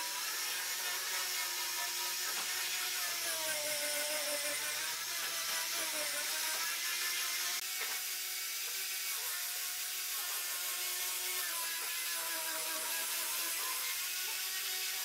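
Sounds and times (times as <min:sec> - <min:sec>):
angle grinder motor whine: 0:00.0 - 0:15.0
sanding disc hissing on wood: 0:00.0 - 0:15.0.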